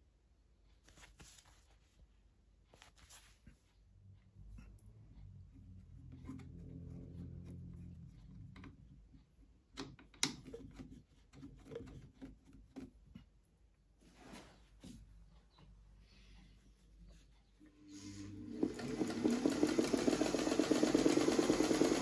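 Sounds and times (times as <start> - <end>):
sewing machine metal clicks: 18.6 - 22.0.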